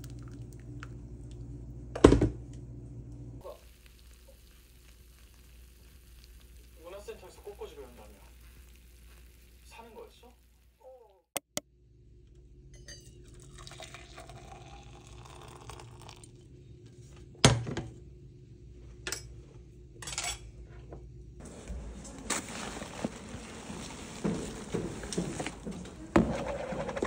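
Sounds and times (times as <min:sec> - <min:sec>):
liquid pouring into metal tumbler: 0:13.3 - 0:16.4.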